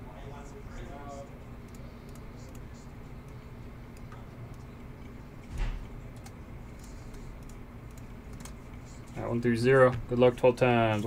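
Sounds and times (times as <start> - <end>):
low steady hum: 0.0 - 11.0
mouse and keyboard clicks: 6.1 - 8.6.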